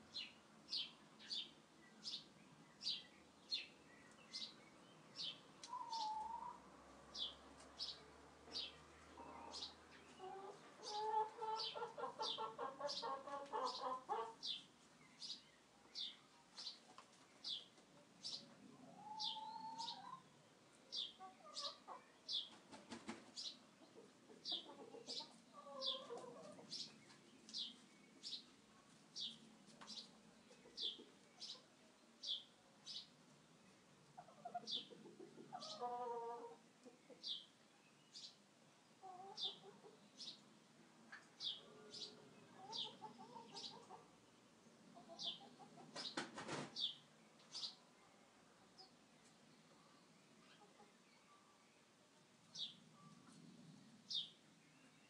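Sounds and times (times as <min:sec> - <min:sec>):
chickens clucking: 0:05.2 - 0:07.9, 0:08.5 - 0:20.3, 0:20.9 - 0:28.4, 0:29.2 - 0:32.4, 0:34.0 - 0:37.4, 0:39.0 - 0:40.4, 0:41.1 - 0:44.2, 0:44.9 - 0:46.9, 0:50.4 - 0:51.0
small bird chirping: 0:07.2 - 0:20.2, 0:46.8 - 0:47.9.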